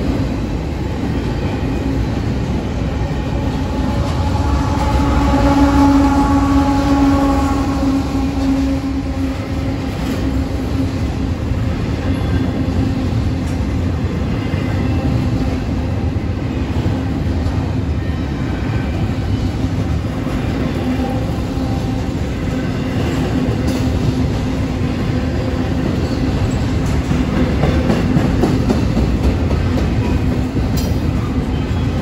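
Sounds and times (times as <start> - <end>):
freight train rumbling past: 0.0 - 32.0
low hum: 2.4 - 11.4.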